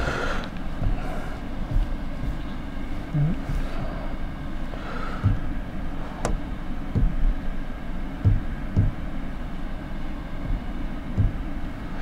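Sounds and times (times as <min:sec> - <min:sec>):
steady low rumble: 0:00.0 - 0:12.0
dull thumps on a whiteboard: 0:06.2 - 0:07.3, 0:08.2 - 0:09.0, 0:11.2 - 0:11.4.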